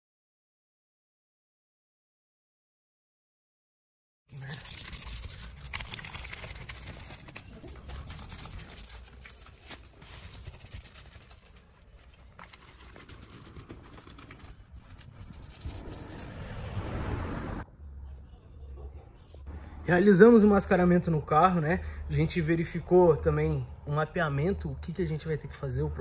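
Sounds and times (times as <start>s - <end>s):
brush scrubbing car grille: 4.5s - 17.0s
low rumble: 14.4s - 18.1s.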